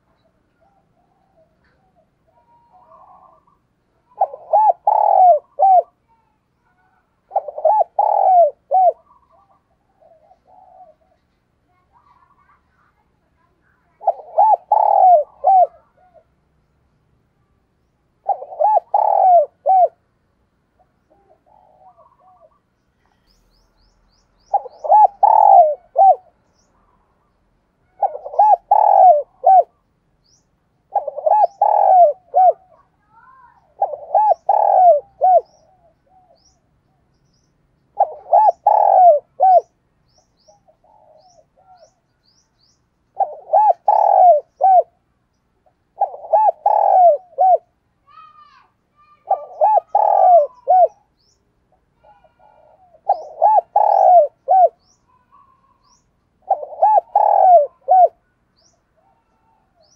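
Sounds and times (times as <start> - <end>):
dove cooing: 0.0 - 6.1, 6.7 - 13.0, 13.7 - 16.4, 18.2 - 20.0, 20.8 - 22.7, 24.5 - 26.4, 27.8 - 29.8, 30.9 - 36.6, 37.9 - 39.8, 40.4 - 42.0, 43.1 - 45.0, 45.8 - 51.2, 51.9 - 58.2, 59.0 - 59.9
small birds chirping: 0.0 - 59.9.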